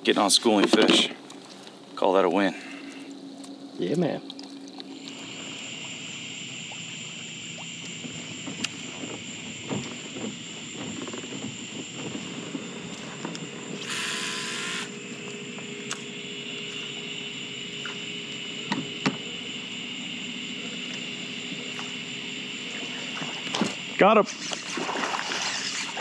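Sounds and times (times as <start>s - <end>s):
steady background hum: 0.0s - 26.0s
fishing line hissing out: 13.8s - 15.0s, 24.2s - 26.0s.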